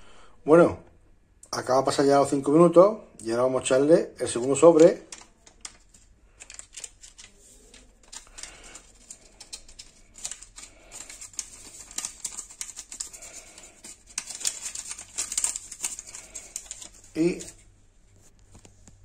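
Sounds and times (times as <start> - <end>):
hot syrup crackling: 4.5 - 17.6.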